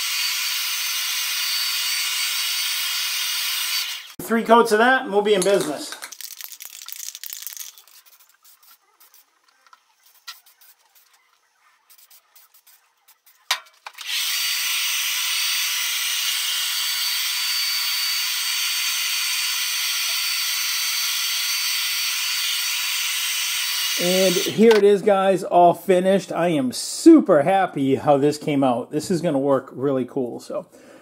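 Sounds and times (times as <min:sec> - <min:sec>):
hair dryer blowing: 0:23.3 - 0:24.7.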